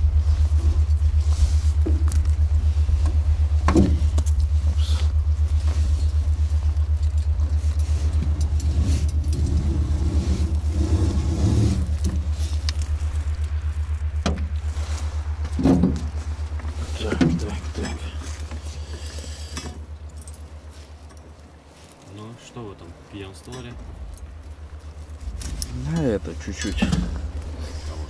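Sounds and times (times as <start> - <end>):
low throbbing engine rumble: 0.0 - 28.0
knocks of net hauling: 1.6 - 20.4.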